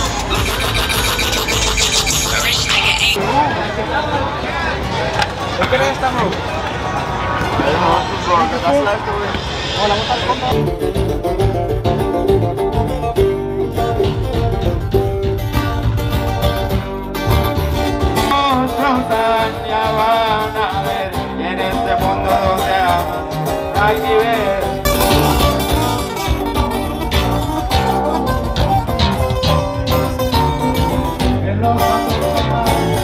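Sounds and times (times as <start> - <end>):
acoustic guitars playing: 0.0 - 3.2, 10.4 - 33.0
man singing: 18.3 - 26.4, 31.1 - 33.0.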